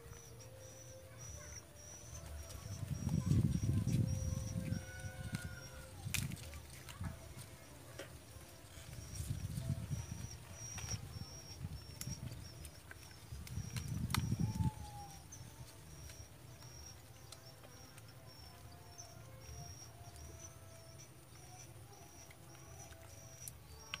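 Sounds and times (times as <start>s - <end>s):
wind rumbling on microphone: 2.2s - 7.8s, 8.4s - 16.4s.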